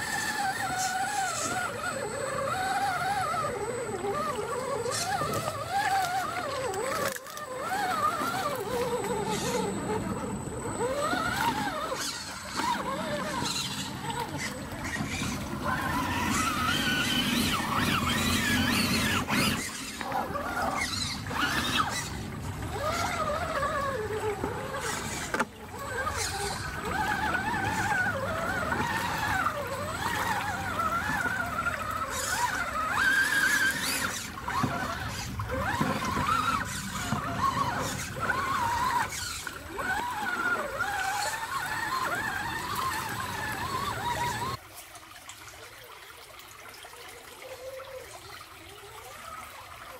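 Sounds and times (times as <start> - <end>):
electric motor whining: 0.0 - 44.6
water splashing and knocks: 19.2 - 44.6.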